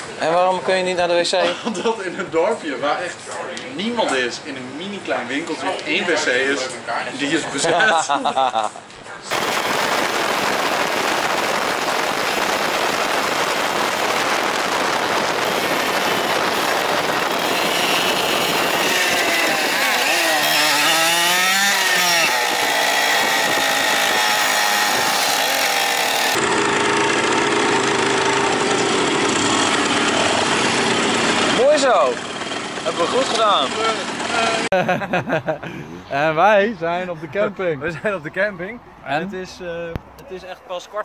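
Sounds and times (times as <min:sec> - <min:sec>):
wind noise on microphone: 0:09.3 - 0:25.4
moped engines running: 0:09.3 - 0:35.6.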